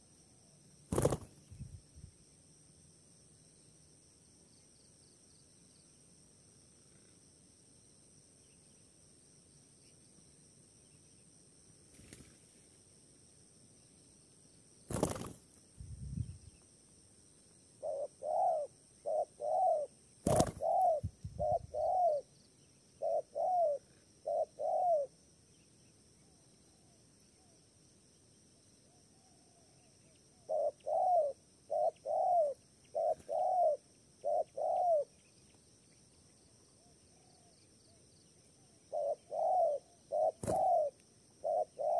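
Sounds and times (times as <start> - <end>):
high insect drone: 0.0 - 41.9
dove cooing: 17.8 - 22.3, 23.0 - 25.1, 30.4 - 35.1, 38.9 - 41.9.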